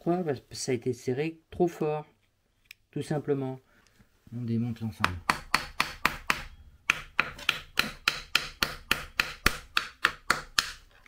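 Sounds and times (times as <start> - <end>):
hammer tapping on metal: 5.0 - 10.8.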